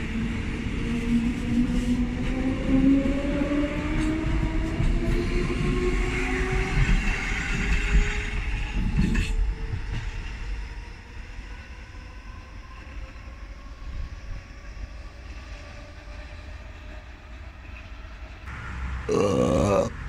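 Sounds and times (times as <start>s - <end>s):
train wheels rumbling on rails: 0.0s - 11.2s.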